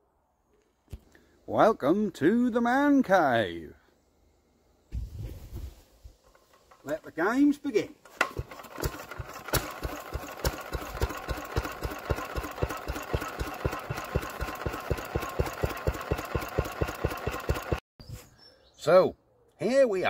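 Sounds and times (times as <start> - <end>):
stationary engine running: 8.4 - 17.8.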